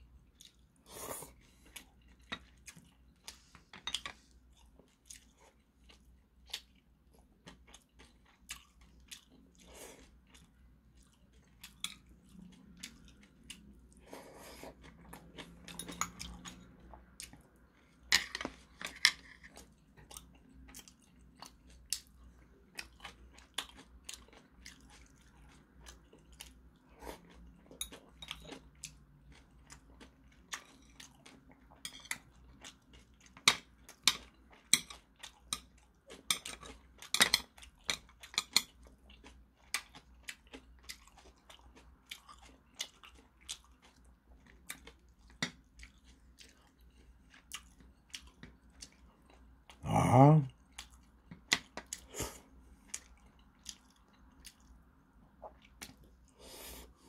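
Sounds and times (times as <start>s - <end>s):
faint low hum: 0.0s - 57.0s
man chewing food: 0.0s - 57.0s
chopsticks and spoon clicking on dishes: 33.4s - 38.8s.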